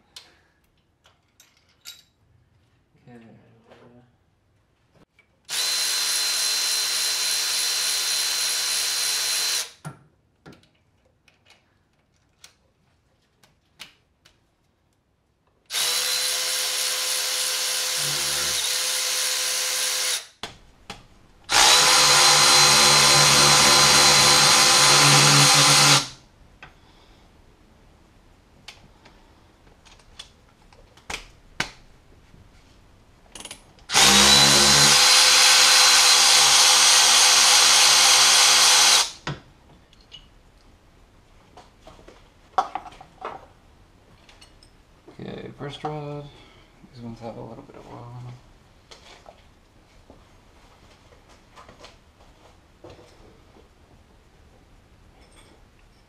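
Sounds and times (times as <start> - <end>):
cordless ratchet whining: 21.5 - 26.1, 33.9 - 39.2.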